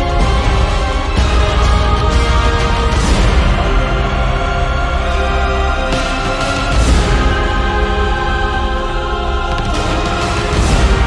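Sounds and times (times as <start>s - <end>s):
orchestral music: 0.0s - 11.0s.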